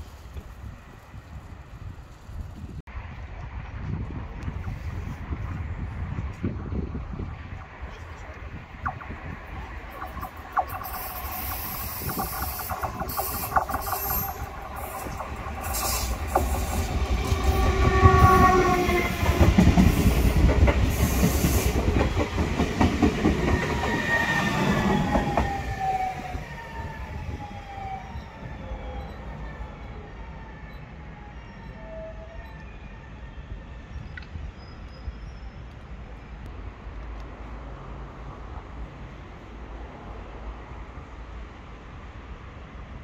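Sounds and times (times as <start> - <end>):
train wheels rumbling on rails: 0.0 - 29.8.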